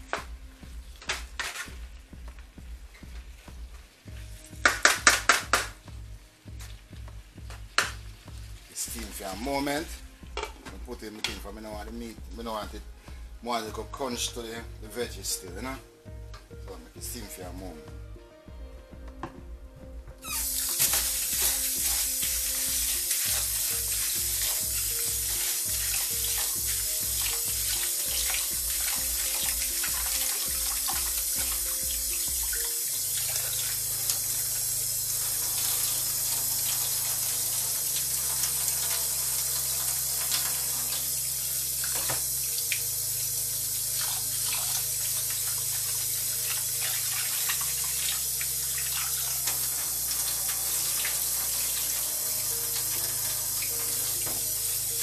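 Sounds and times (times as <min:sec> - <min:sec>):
background music with bass: 0:00.0 - 0:55.0
tap running into steel sink: 0:41.8 - 0:42.3.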